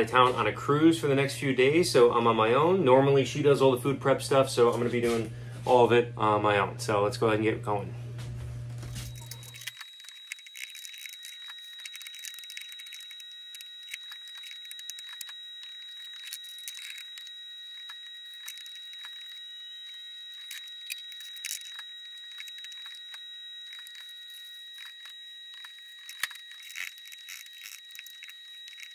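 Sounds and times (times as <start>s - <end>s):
faint steady high tone: 9.0s - 28.9s.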